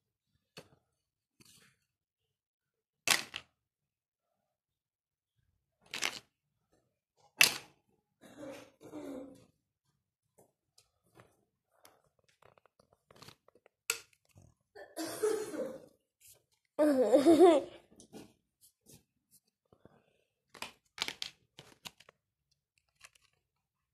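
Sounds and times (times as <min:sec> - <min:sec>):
plastic parts knocking and clicking: 0:03.1 - 0:03.5, 0:05.8 - 0:06.3, 0:07.2 - 0:07.8, 0:12.2 - 0:14.5, 0:20.5 - 0:22.2, 0:22.8 - 0:23.5.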